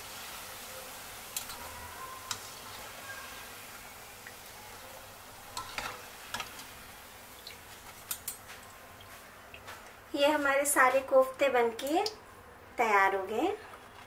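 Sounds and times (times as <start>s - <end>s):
food deep-frying in hot oil: 0.0s - 14.0s.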